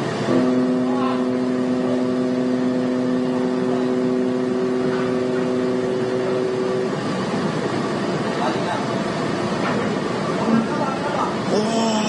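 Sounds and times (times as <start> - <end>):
noisy background: 0.0 - 12.0
ship's horn blast: 0.3 - 3.2.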